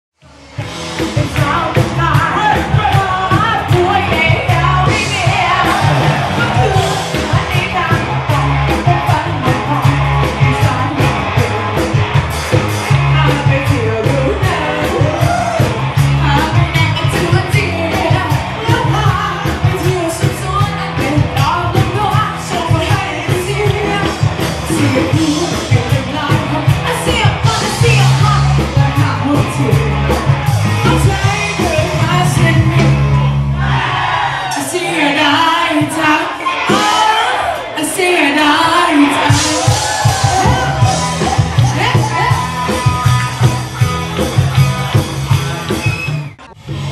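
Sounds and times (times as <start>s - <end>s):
rock band playing: 0.2s - 46.9s
woman singing into a microphone: 1.2s - 11.7s, 13.1s - 15.3s, 16.2s - 30.2s, 30.8s - 33.0s, 34.6s - 40.6s.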